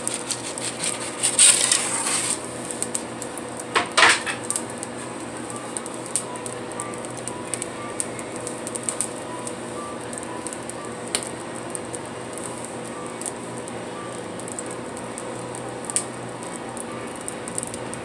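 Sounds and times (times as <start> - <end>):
pizza peel scraping oven floor: 0.0 - 2.9
wood fire crackling: 0.0 - 18.0.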